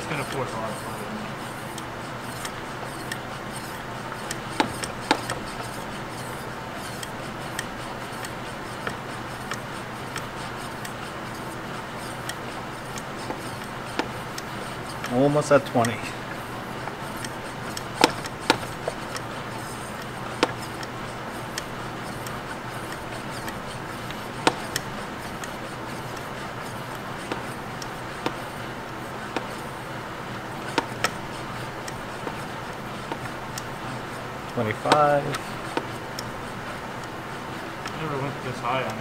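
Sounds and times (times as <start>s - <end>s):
steady background noise: 0.0s - 39.0s
hand pump clicks and knocks: 2.3s - 5.4s.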